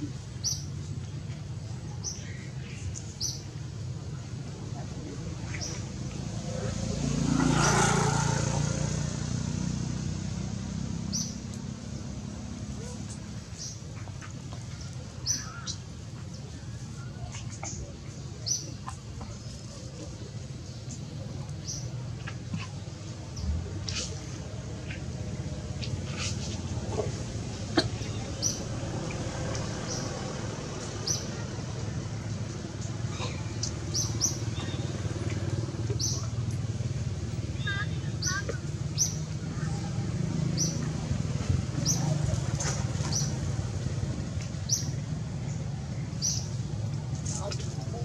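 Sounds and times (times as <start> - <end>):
distant traffic rumble: 0.0 - 48.0
vehicle engine passing by: 5.7 - 13.7, 22.9 - 37.6, 38.2 - 48.0.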